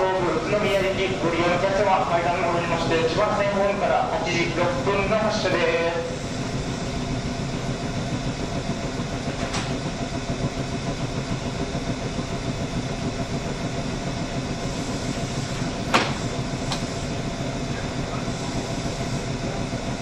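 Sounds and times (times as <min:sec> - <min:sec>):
electric train humming: 0:00.0 - 0:20.0.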